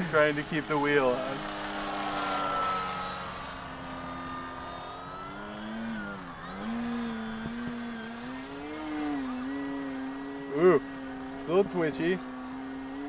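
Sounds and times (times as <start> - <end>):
model plane propeller buzzing: 0.0 - 13.0.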